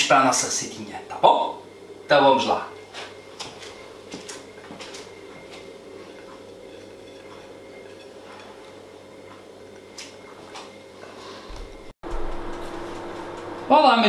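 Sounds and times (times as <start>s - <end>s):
low hum: 11.5s - 14.0s.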